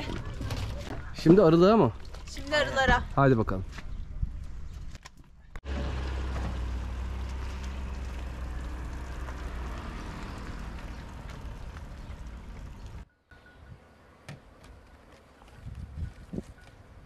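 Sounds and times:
car engine humming: 0:05.7 - 0:13.0.

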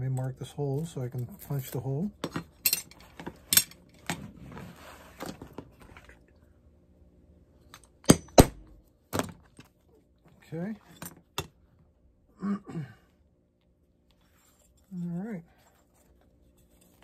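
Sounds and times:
metal tools clinking: 0:02.6 - 0:03.9.

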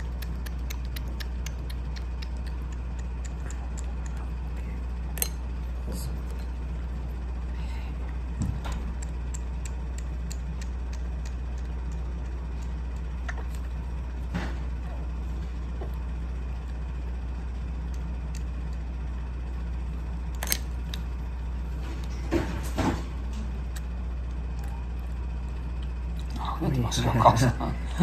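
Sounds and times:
kitten suckling from syringe: 0:00.0 - 0:04.6, 0:08.5 - 0:13.8
air conditioner humming: 0:00.0 - 0:28.0.

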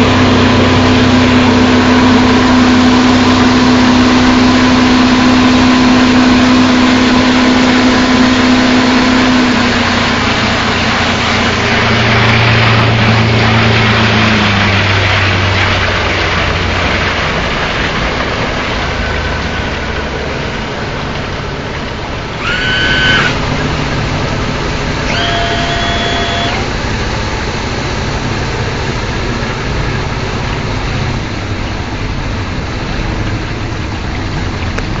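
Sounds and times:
outboard motor running: 0:00.0 - 0:35.0
rushing water and wind: 0:00.0 - 0:35.0
high-pitched tones: 0:25.0 - 0:26.8.

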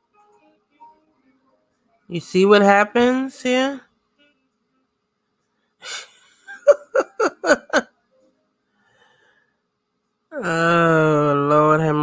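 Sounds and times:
woman laughing: 0:05.8 - 0:07.9
woman breathing in: 0:08.7 - 0:09.7.

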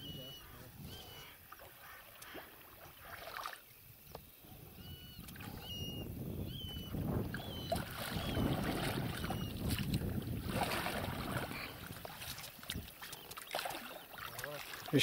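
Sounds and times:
paddles splashing: 0:01.0 - 0:03.7, 0:06.7 - 0:15.0
water sloshing: 0:01.4 - 0:03.7, 0:06.9 - 0:15.0.

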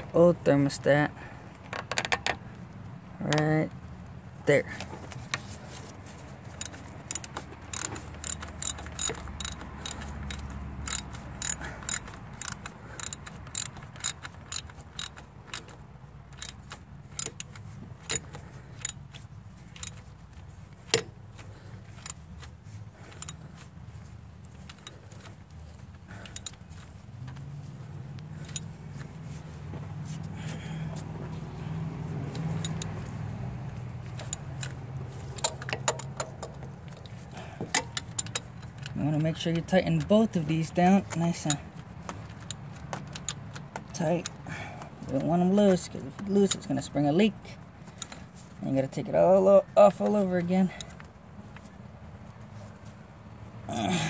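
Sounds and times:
ratchet wrench clicking: 0:06.5 - 0:20.1, 0:21.9 - 0:22.3, 0:23.0 - 0:23.4, 0:24.6 - 0:25.4, 0:26.1 - 0:26.9, 0:28.4 - 0:28.7, 0:32.3 - 0:33.1, 0:34.1 - 0:36.6, 0:37.7 - 0:39.0, 0:42.3 - 0:43.6.

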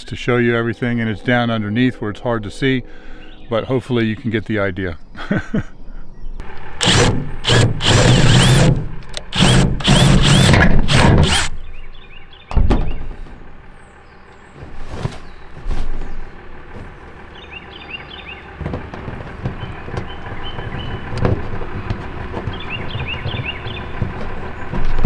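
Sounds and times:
thump: 0:12.5 - 0:13.2.

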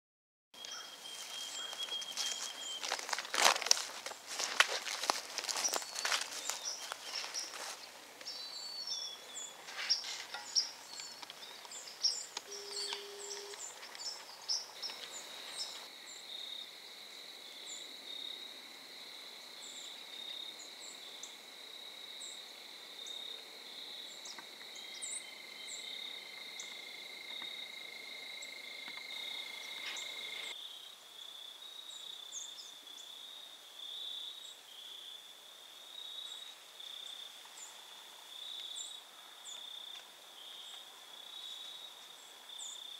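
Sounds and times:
birds chirping: 0:00.6 - 0:16.4
crickets trilling: 0:00.6 - 0:42.9
sharp rustles: 0:09.6 - 0:10.8.

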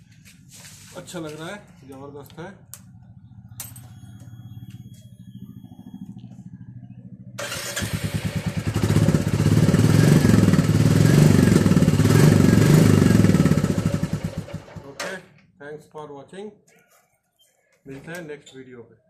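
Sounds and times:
faint low rumble: 0:02.5 - 0:07.4
motorcycle engine starting and thumping: 0:03.2 - 0:15.2.

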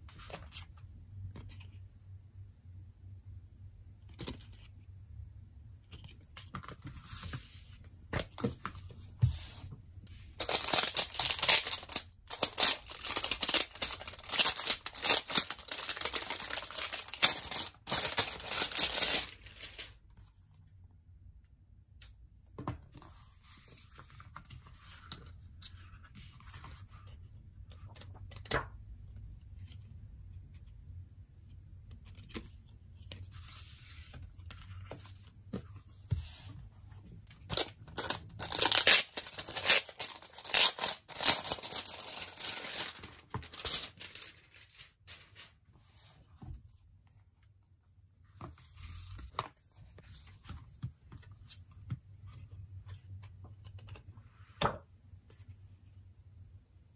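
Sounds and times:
rustling: 0:10.3 - 0:19.9, 0:38.0 - 0:45.5
plastic wrap crinkling and tearing: 0:10.3 - 0:20.0, 0:37.5 - 0:45.5.

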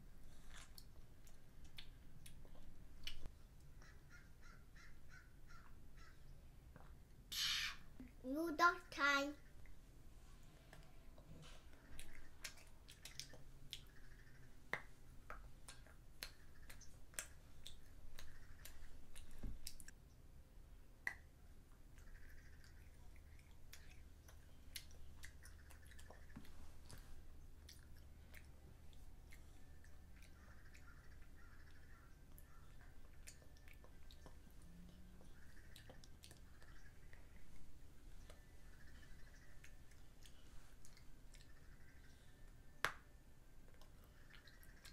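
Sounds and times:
child chewing: 0:00.1 - 0:04.2, 0:10.7 - 0:14.5, 0:15.1 - 0:20.0, 0:21.8 - 0:42.5
mouth clicks and smacks: 0:00.4 - 0:04.0, 0:10.7 - 0:20.0, 0:21.0 - 0:37.6, 0:38.2 - 0:44.9.

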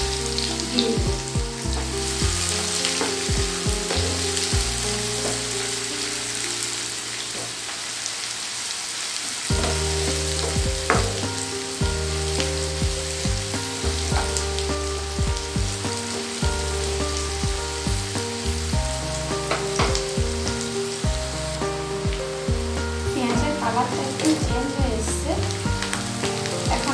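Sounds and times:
soft background music: 0:00.0 - 0:08.7, 0:09.4 - 0:26.9
onions sizzling in oil: 0:00.0 - 0:26.9.

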